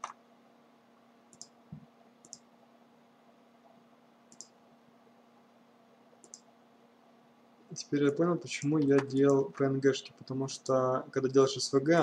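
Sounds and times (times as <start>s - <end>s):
faint steady hum: 0.0s - 12.0s
computer mouse clicks: 1.3s - 1.6s, 2.2s - 2.5s, 4.3s - 4.6s, 6.2s - 6.5s.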